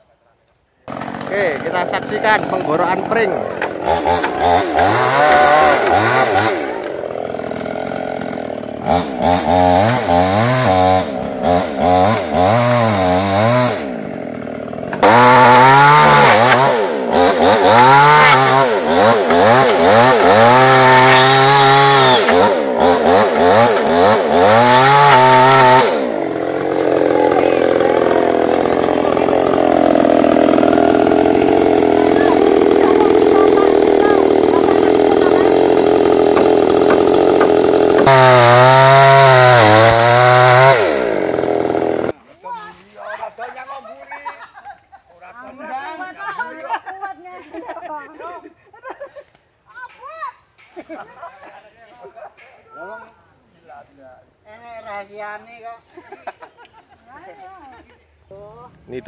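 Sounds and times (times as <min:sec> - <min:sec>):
chainsaw sawing bamboo: 0:00.8 - 0:43.6.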